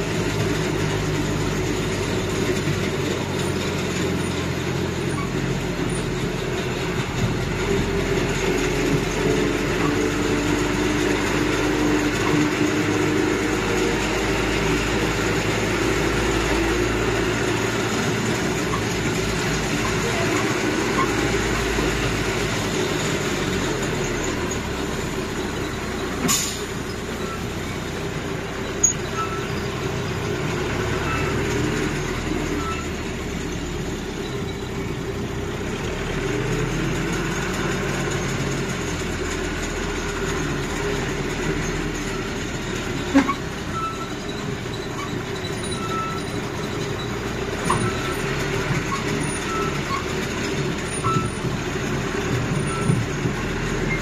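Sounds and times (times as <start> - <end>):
land train engine running: 0.0 - 54.0
sharp knocks and rattles: 36.3 - 54.0.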